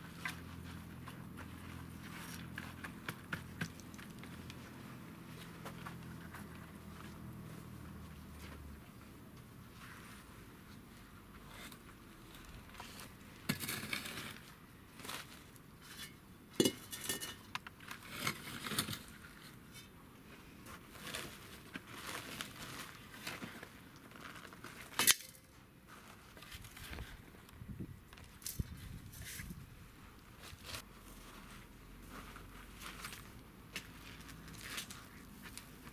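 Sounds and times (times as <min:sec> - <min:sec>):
metal trowel scraping a metal pot: 0:13.5 - 0:14.4, 0:15.8 - 0:19.1.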